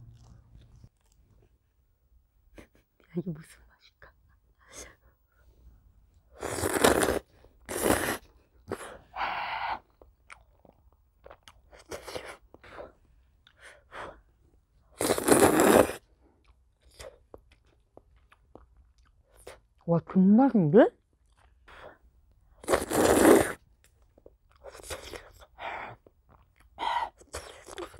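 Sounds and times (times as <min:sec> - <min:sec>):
person slurping noodles: 0:06.4 - 0:09.0, 0:15.0 - 0:16.0, 0:22.6 - 0:23.6.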